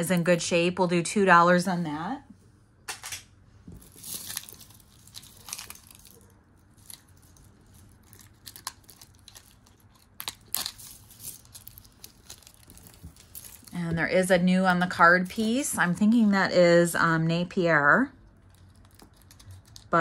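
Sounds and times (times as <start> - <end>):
jewelry clicking and rustling: 3.0 - 13.9, 18.2 - 20.0.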